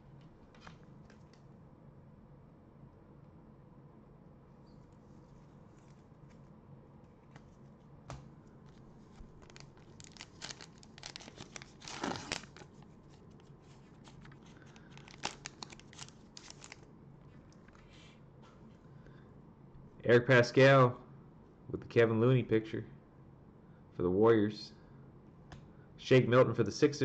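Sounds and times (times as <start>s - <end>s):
plastic wrapper tearing and crinkling: 9.2s - 16.9s.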